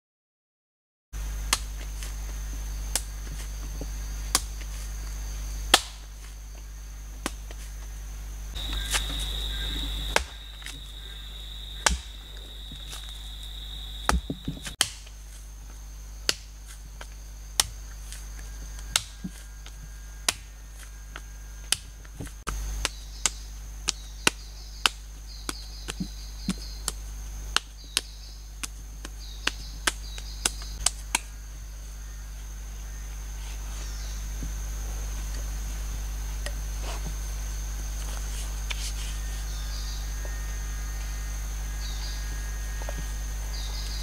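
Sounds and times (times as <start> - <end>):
high-pitched insect drone: 7.8 - 14.8, 31.2 - 44.0.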